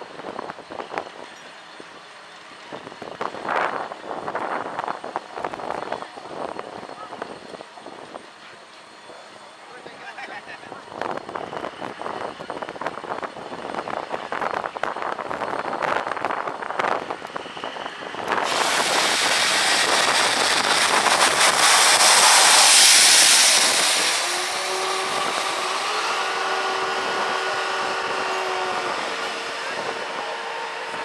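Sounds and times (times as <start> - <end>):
rush of hissing steam: 15.8 - 31.0
humming tone with overtones: 20.0 - 31.0.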